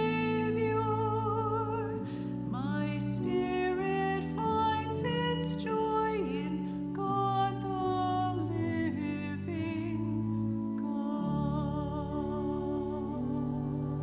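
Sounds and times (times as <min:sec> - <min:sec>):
sustained instrumental accompaniment: 0:00.0 - 0:05.6
woman singing a hymn: 0:00.0 - 0:14.0.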